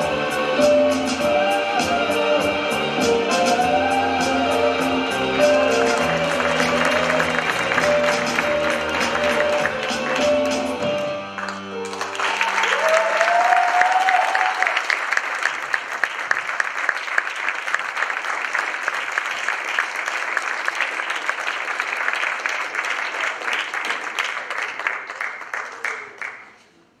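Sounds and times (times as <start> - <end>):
audience applause: 5.5 - 26.7.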